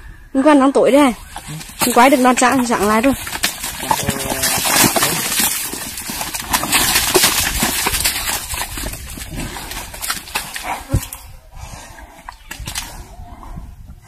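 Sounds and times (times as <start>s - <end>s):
mud sloshing and slapping: 1.2s - 11.2s.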